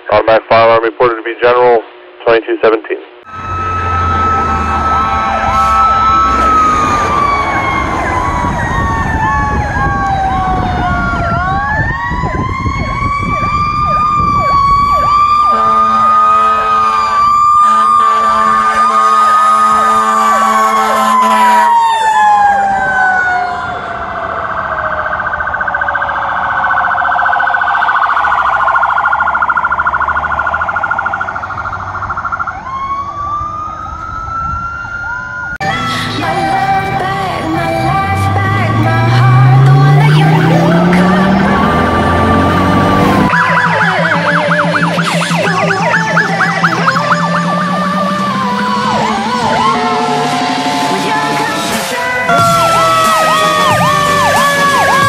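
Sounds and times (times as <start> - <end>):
fast warbling siren: 3.2 - 55.0
wailing siren: 3.2 - 55.0
low horn blasts: 3.3 - 8.5, 15.4 - 21.8, 35.6 - 43.3, 44.9 - 55.0.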